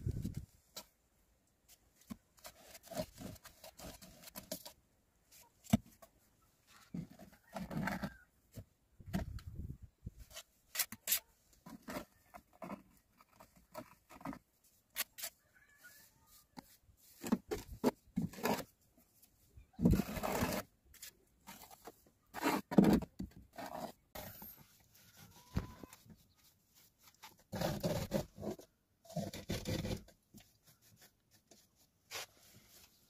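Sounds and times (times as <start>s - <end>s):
trowel scraping plaster: 10.3s - 18.7s, 19.8s - 32.6s.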